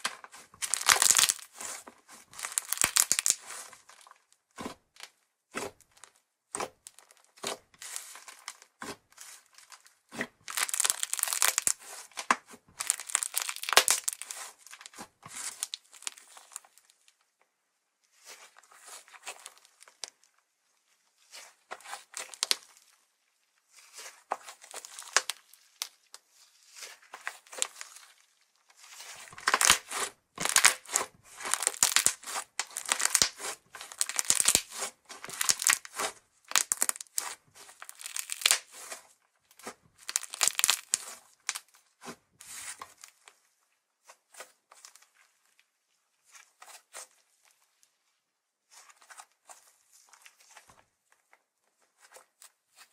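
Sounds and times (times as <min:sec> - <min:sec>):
sticky slime tearing: 0:00.6 - 0:01.5, 0:02.4 - 0:03.5, 0:10.5 - 0:16.6, 0:24.7 - 0:25.9, 0:29.3 - 0:38.9, 0:39.6 - 0:41.6
slime crackling: 0:00.6 - 0:01.7, 0:02.4 - 0:03.6, 0:10.5 - 0:16.7, 0:24.7 - 0:25.9, 0:29.3 - 0:38.9, 0:39.6 - 0:41.6.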